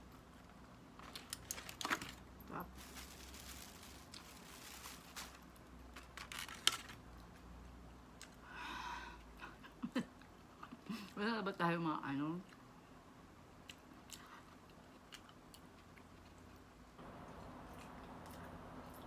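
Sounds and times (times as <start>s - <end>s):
aluminium foil crinkling: 1.0s - 7.0s.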